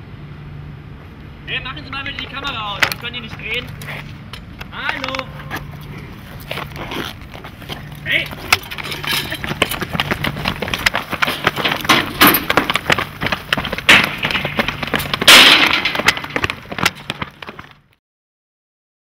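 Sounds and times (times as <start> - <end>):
running footsteps on pavement: 1.9 - 18.0
loud crash: 13.6 - 16.8.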